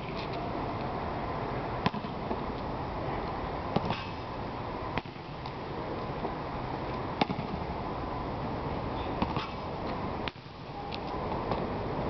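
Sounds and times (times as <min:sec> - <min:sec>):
outdoor background rush: 0:00.0 - 0:12.0.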